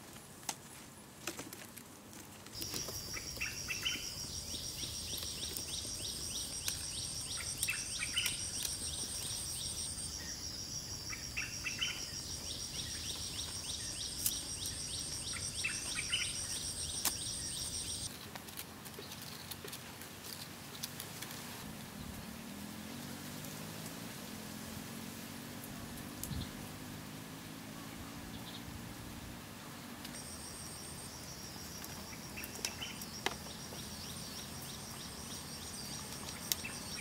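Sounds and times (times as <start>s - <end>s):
bird chirps: 2.6s - 18.1s, 30.2s - 37.0s
insects trilling: 2.6s - 18.1s, 30.1s - 37.0s.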